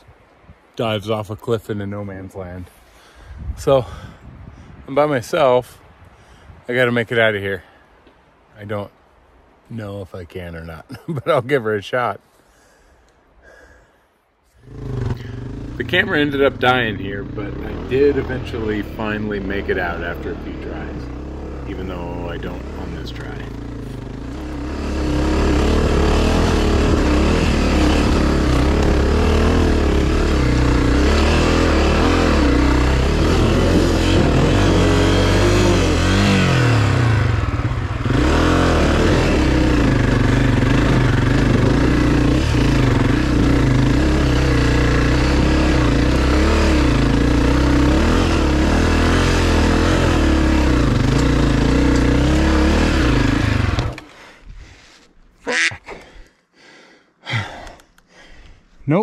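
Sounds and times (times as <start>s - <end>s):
dirt bike engine revving hard: 14.6s - 54.0s.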